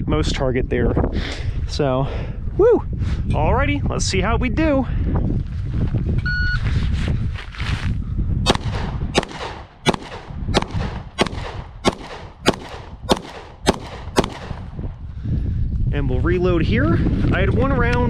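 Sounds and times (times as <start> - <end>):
wind on microphone: 0.0 - 18.0
pistol shots: 8.5 - 14.7.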